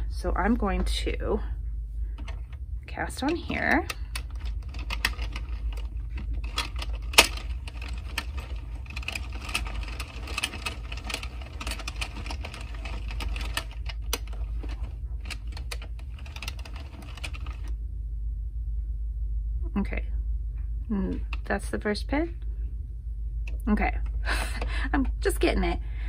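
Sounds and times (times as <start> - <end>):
low steady hum: 0.0 - 26.0
knitting machine clicking and rattling: 2.2 - 17.7.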